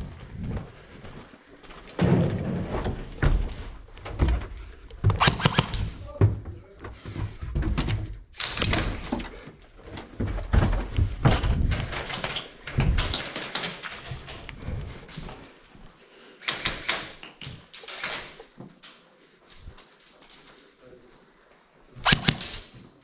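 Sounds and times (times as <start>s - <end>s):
footsteps and gear thuds: 0.0s - 16.0s
sharp clicks: 5.1s - 5.9s, 22.0s - 22.7s.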